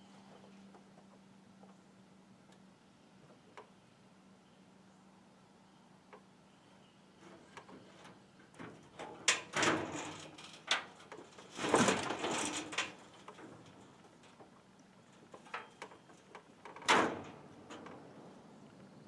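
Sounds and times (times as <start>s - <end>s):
mower deck scraping on steel: 9.0s - 13.7s.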